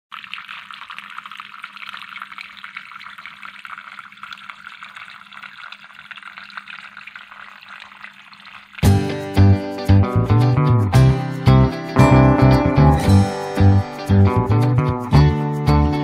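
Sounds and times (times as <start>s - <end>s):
fountain water trickling onto pebbles: 0.1s - 9.0s.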